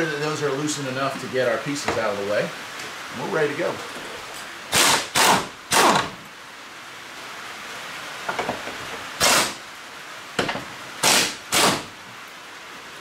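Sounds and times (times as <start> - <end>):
pneumatic air tool hissing: 4.7 - 6.1, 9.2 - 9.6, 11.0 - 11.9.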